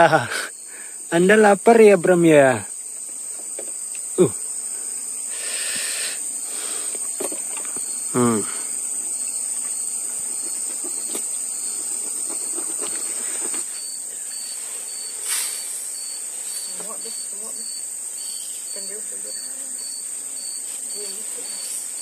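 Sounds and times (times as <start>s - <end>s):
insects shrilling: 0.0s - 22.0s.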